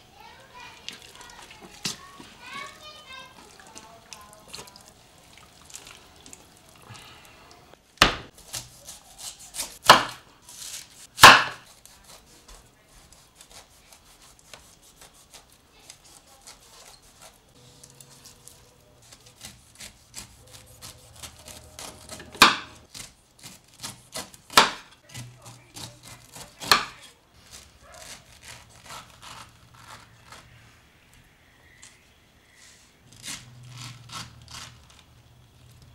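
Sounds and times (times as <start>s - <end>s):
knife slicing and scraping: 8.3s - 30.8s, 32.6s - 35.4s.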